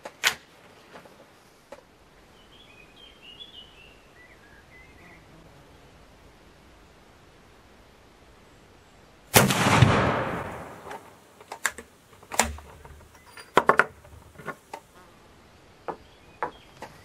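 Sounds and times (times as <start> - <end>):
rifle shot: 9.3 - 11.2.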